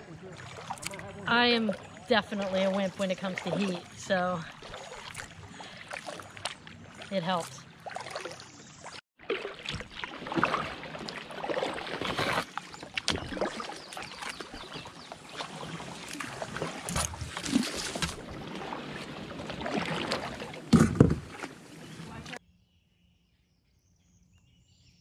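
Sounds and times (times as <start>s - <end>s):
paddle splashes and drips: 0.0s - 22.4s
branches scraping against kayak: 10.3s - 22.4s.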